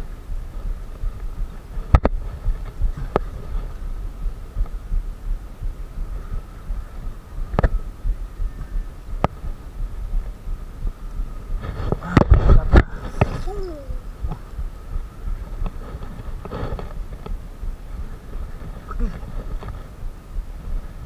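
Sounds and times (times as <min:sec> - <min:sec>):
low rumbling handling noise: 0:00.0 - 0:21.0.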